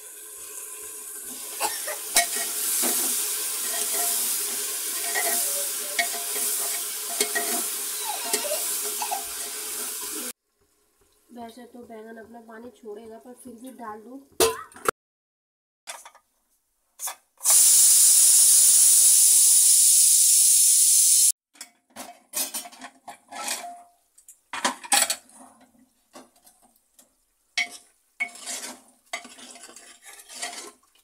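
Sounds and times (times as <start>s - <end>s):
pressure cooker hissing steam: 0.0s - 10.4s, 17.4s - 21.4s
metal lid clanking and scraping: 1.7s - 10.0s, 22.0s - 23.8s, 27.6s - 30.8s
spoon stirring in pot: 3.6s - 10.1s, 27.6s - 31.0s.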